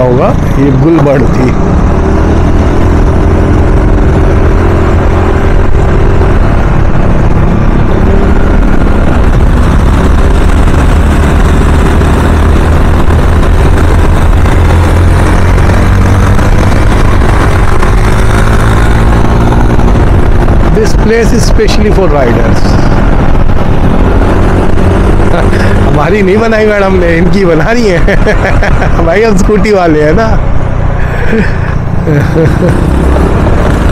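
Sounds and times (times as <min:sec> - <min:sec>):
road noise: 0:00.0 - 0:33.9
scooter engine: 0:26.9 - 0:33.9.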